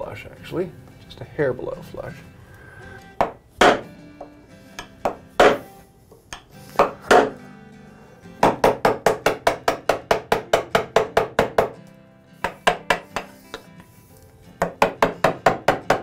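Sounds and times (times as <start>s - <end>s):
chisel struck cutting wood: 3.2s - 3.9s, 4.8s - 5.7s, 6.3s - 7.4s, 8.4s - 11.8s, 12.4s - 13.7s, 14.6s - 16.0s.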